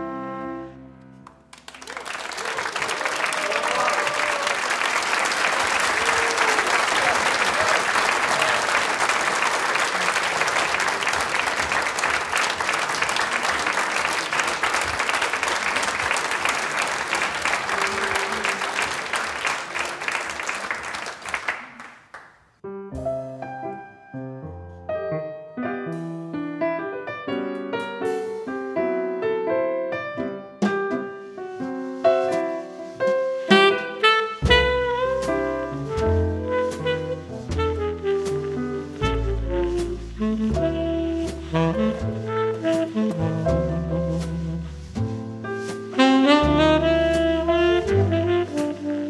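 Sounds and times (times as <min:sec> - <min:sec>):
audience applauding: 0:01.5 - 0:22.4
jazz band playing: 0:04.9 - 0:20.4, 0:30.3 - 0:49.0.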